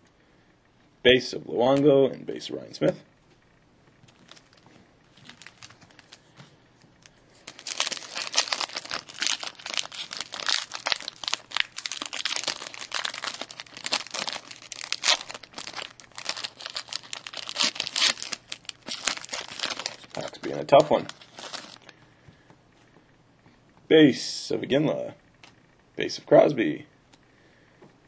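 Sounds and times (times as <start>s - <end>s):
foil wrapper crackling: 4.1s - 6.2s, 7.0s - 21.9s.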